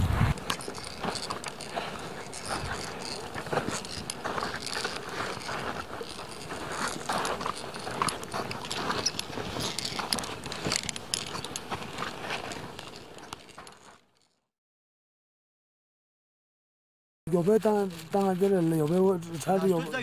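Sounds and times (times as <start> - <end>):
footsteps crunching on snow and rock: 0.0 - 14.4, 17.3 - 20.0
metal climbing gear clinking: 0.3 - 14.4.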